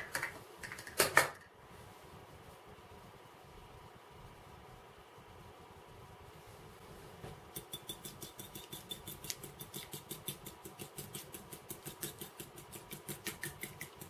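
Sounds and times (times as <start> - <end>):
whisk ticking against bowl: 7.5 - 14.0.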